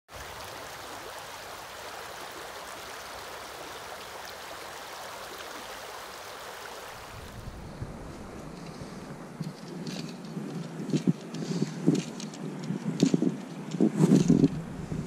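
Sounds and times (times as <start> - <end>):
river water rushing over stones: 0.1 - 11.3.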